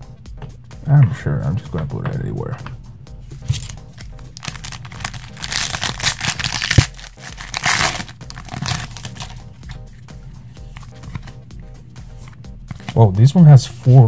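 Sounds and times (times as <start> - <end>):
cards sliding out: 3.4 - 9.8
foil wrapper crinkling and tearing: 3.5 - 9.7.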